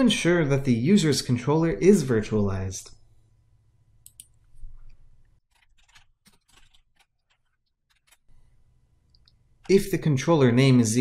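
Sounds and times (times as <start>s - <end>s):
keyboard typing: 4.0s - 8.4s.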